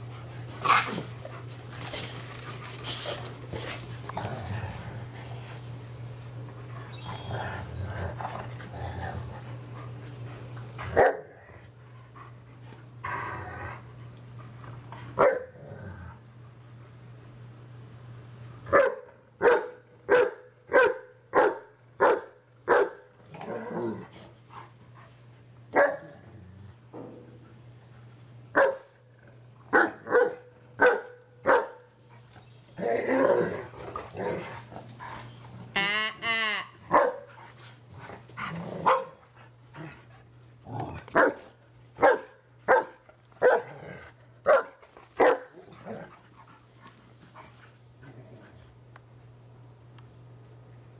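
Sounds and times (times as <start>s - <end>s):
dogs growling and snarling: 0.0s - 16.3s, 23.2s - 25.1s, 25.8s - 27.4s, 32.7s - 35.9s, 37.3s - 41.7s, 43.1s - 48.8s
dogs barking: 10.8s - 11.4s, 15.2s - 15.6s, 18.7s - 23.1s, 25.7s - 26.1s, 28.5s - 28.9s, 29.7s - 31.9s, 36.9s - 37.4s, 38.8s - 39.3s, 41.1s - 46.1s.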